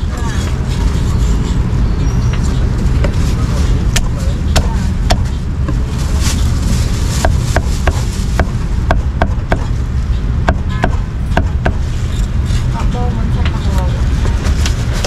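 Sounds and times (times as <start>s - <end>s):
low background rumble: 0.0s - 15.0s
cleaver chopping on wooden block: 7.2s - 9.7s.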